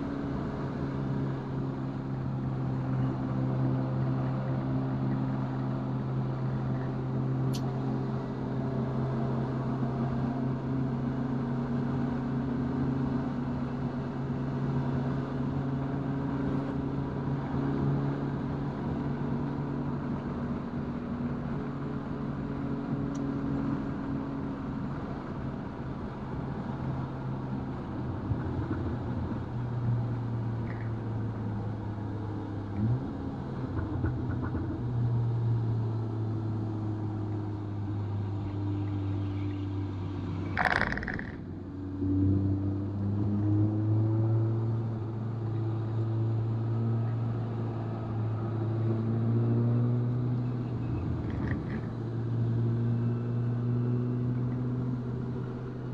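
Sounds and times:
car engine running: 36.5 - 41.7, 50.6 - 52.6.

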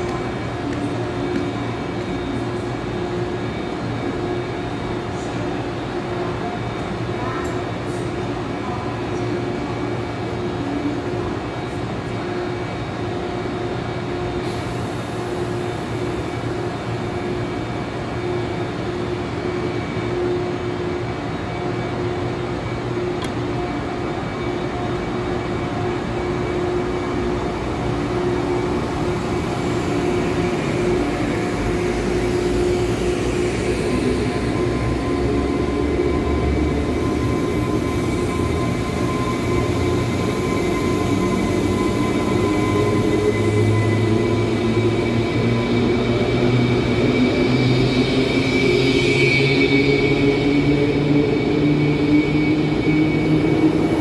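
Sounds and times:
train electrical hum: 0.0 - 54.0
train low rumble: 0.0 - 54.0.

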